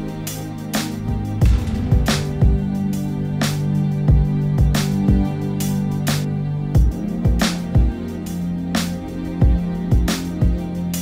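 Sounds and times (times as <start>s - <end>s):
steady drum beat: 1.1s - 8.0s
held bass note: 1.4s - 4.7s
cymbal crash hit: 1.4s - 5.2s.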